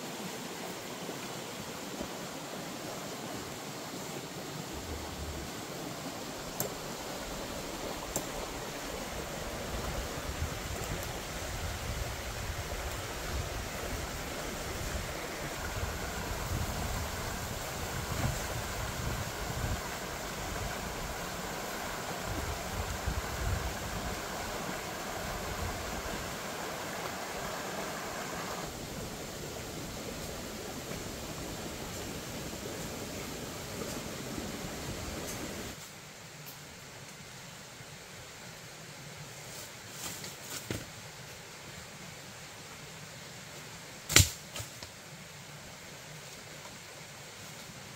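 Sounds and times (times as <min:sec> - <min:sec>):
high even hiss: 0:00.0 - 0:37.6.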